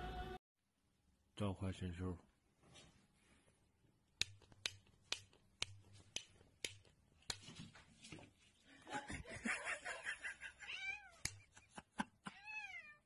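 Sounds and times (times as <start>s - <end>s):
cat meowing: 10.6s - 11.3s, 12.3s - 13.0s.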